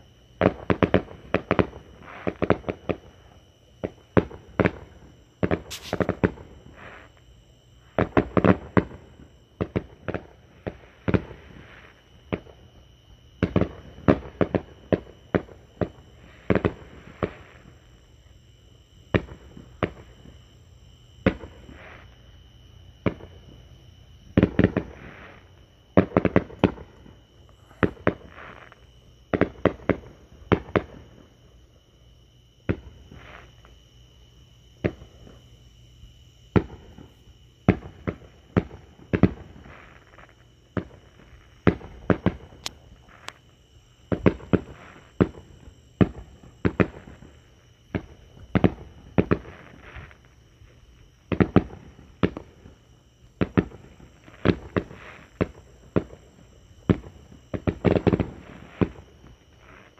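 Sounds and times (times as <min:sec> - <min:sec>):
fireworks bursting with bangs: 0:03.8 - 0:07.1, 0:07.8 - 0:12.6, 0:13.4 - 0:17.8, 0:23.0 - 0:23.6, 0:24.4 - 0:31.2, 0:36.5 - 0:43.4, 0:44.1 - 0:50.3, 0:51.3 - 0:52.8, 0:53.4 - 0:59.9.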